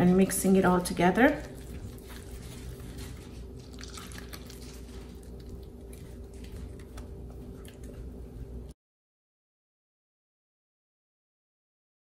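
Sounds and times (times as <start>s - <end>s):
dough squishing: 0.0s - 8.7s
steady low hum: 0.0s - 8.8s.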